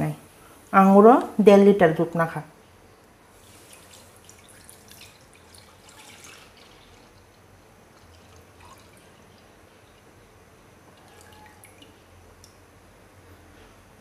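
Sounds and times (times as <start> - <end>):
milk pouring and splashing: 3.3 - 10.2.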